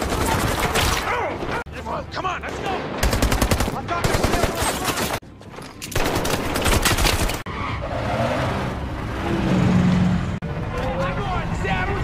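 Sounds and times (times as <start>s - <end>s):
rapid automatic gunfire: 3.0s - 4.7s.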